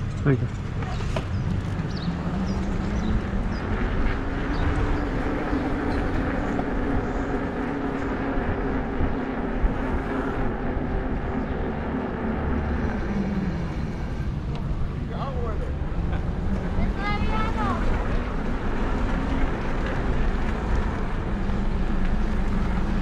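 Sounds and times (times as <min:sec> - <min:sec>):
wind rumble on microphone: 0:00.0 - 0:23.0
electric bike motor whining: 0:01.1 - 0:15.1.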